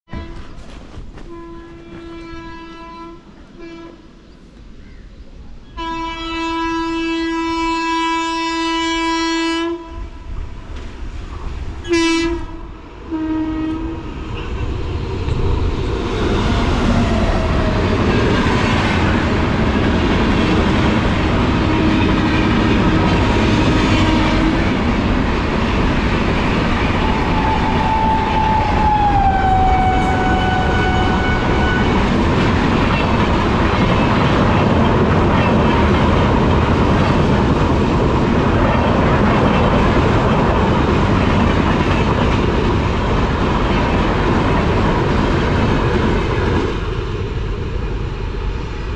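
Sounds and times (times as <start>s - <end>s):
train horn blast: 0.1s - 0.6s, 1.2s - 4.0s, 5.7s - 10.3s, 11.8s - 14.0s, 21.5s - 24.8s, 26.9s - 32.2s
train rumble and clickety-clack: 0.1s - 48.9s.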